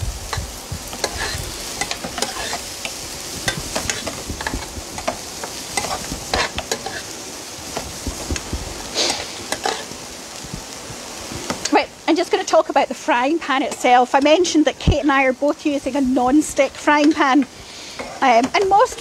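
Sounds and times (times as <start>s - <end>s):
leeks sizzling in butter: 0.0s - 19.0s
spoon scraping frying pan: 0.3s - 8.2s, 8.9s - 10.0s.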